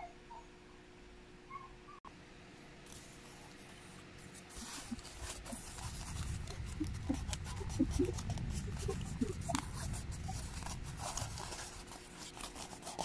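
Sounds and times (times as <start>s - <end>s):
cardboard scraping and crackling: 2.9s - 13.0s.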